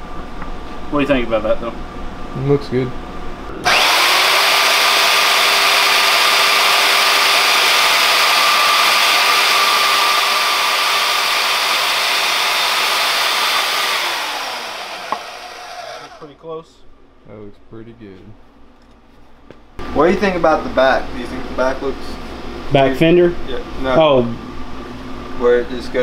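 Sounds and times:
band saw cutting plastic: 0:03.6 - 0:16.3.

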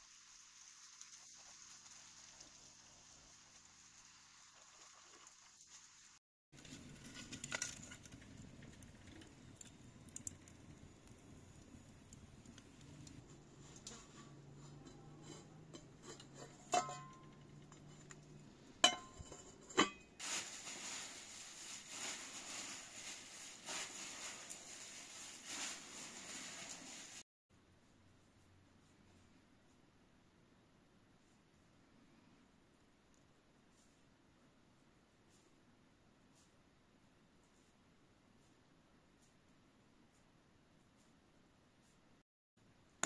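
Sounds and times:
steady hiss: 0:00.0 - 0:06.2, 0:20.2 - 0:27.2
fork clinking on metal griddle: 0:14.6 - 0:18.2, 0:18.8 - 0:20.1.

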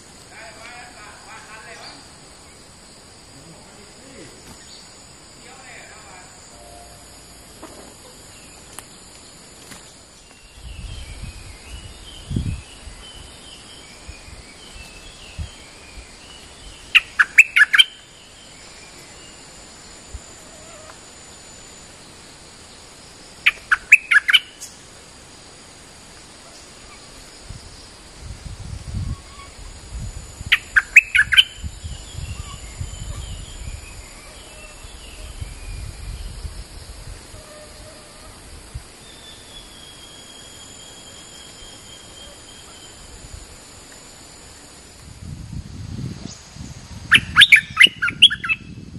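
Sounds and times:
high insect hum: 0:00.0 - 0:48.9
bird calling in quick bursts: 0:16.9 - 0:18.0, 0:23.4 - 0:24.7, 0:30.5 - 0:31.5, 0:47.1 - 0:48.7
soft bird chirps: 0:30.6 - 0:36.3, 0:47.1 - 0:48.9.

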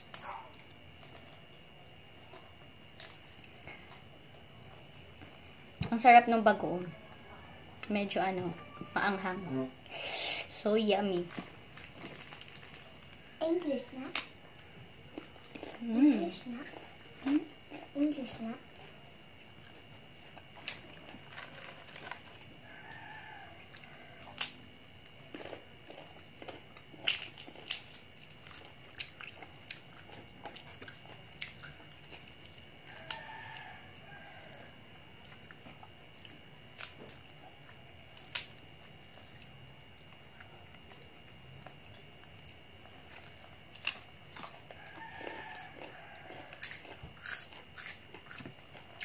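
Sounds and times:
chewing: 0:14.1 - 0:18.1, 0:18.7 - 0:49.0
crisp crunching bites: 0:20.4 - 0:22.4, 0:23.8 - 0:24.6, 0:25.2 - 0:35.5, 0:36.2 - 0:41.4, 0:42.3 - 0:49.0.

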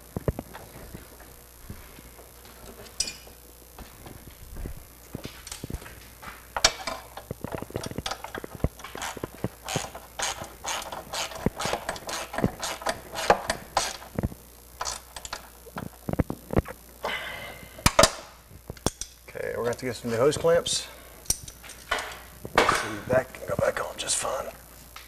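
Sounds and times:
ratcheting wrench clicking: 0:07.8 - 0:14.1.

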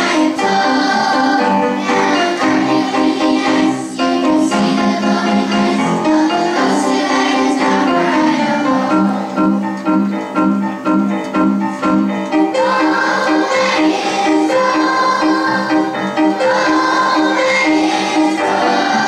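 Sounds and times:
children's choir singing: 0:00.0 - 0:10.2, 0:12.0 - 0:19.0
musical accompaniment: 0:00.0 - 0:19.0.

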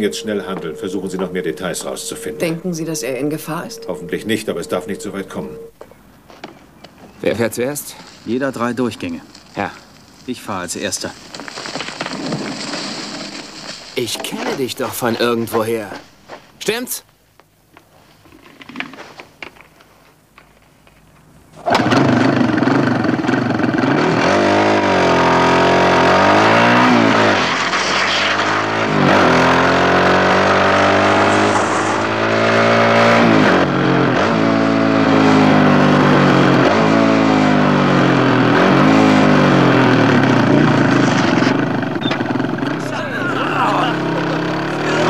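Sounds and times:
dirt bike engine revving: 0:21.6 - 0:45.0.

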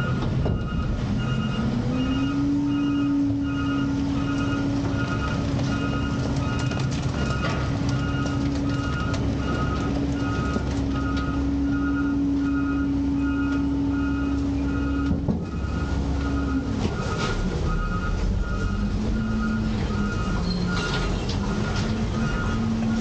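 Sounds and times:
garbage truck engine rumbling: 0:00.0 - 0:23.0
hydraulics humming: 0:00.0 - 0:23.0
reversing alarm beeping: 0:00.0 - 0:23.0.

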